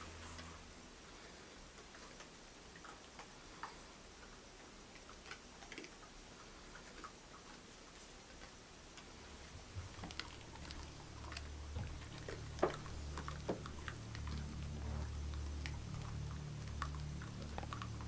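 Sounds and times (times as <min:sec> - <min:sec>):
low hum: 0:00.0 - 0:02.0, 0:09.0 - 0:18.0
small clicks and taps: 0:08.3 - 0:18.0.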